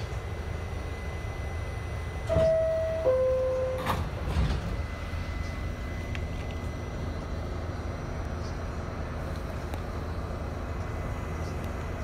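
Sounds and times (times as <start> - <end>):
train rumbling: 0.0 - 12.0
two-note door chime: 2.3 - 4.0
sliding doors shutting: 2.3 - 4.9.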